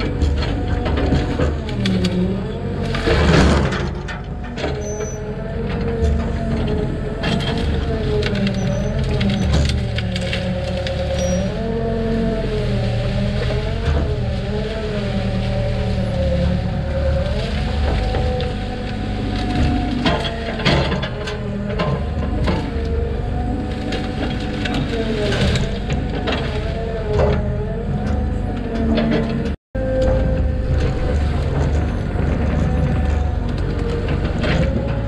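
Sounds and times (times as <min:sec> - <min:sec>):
branches crackling and snapping: 0:00.0 - 0:29.2, 0:29.9 - 0:35.0
excavator engine and hydraulics: 0:00.0 - 0:35.0.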